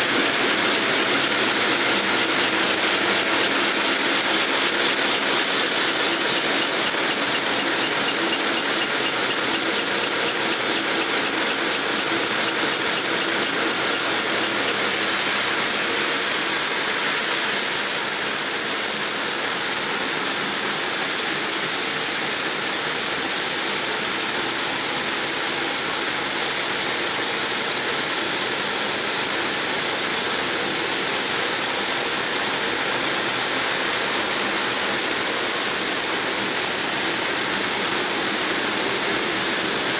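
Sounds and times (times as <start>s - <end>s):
stone saw cutting: 0.0s - 17.0s.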